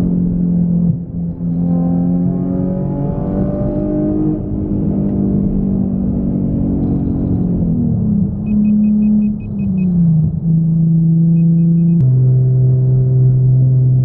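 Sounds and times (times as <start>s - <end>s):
car engine accelerating and shifting: 0.0s - 14.0s
short high beeps: 8.5s - 9.9s, 11.3s - 12.0s.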